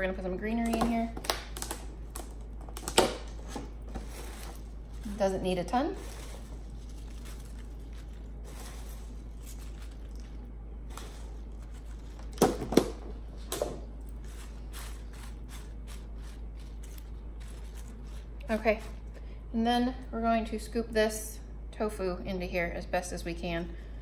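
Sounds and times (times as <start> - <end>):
steady low hum: 0.0 - 24.0
leaves rustling: 4.0 - 12.2.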